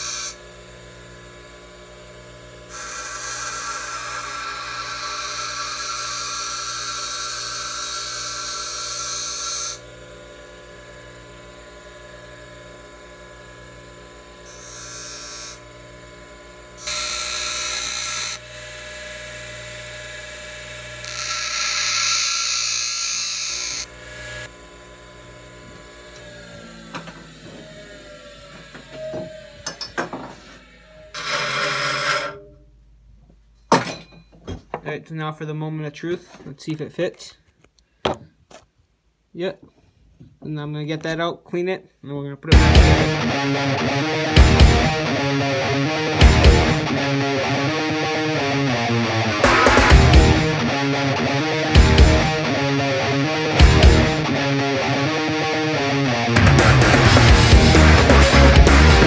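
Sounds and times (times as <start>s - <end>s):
bench grinder motor hum: 0.0s - 32.5s, 44.2s - 59.0s
metal blade grinding on wheel: 2.7s - 9.8s, 16.8s - 18.5s, 20.1s - 24.5s, 30.7s - 32.6s.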